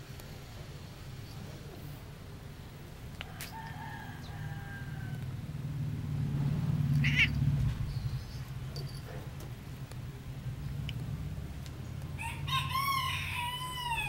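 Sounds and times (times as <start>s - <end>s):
cat purring: 6.0s - 12.0s
faint drawn-out cat call: 7.0s - 7.4s.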